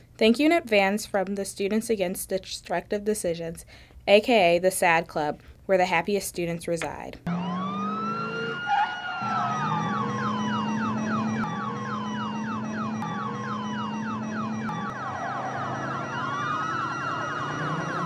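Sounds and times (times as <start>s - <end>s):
police sirens yelping and wailing: 7.3s - 18.0s.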